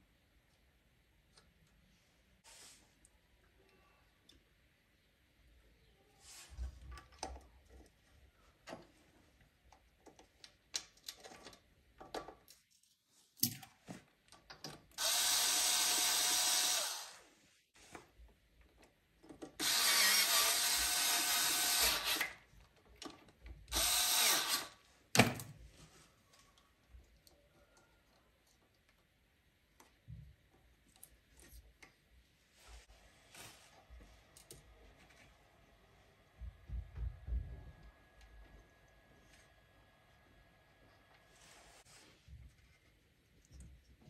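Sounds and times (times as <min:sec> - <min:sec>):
cordless drill whining: 0:15.0 - 0:17.2, 0:19.6 - 0:22.4, 0:23.7 - 0:24.8.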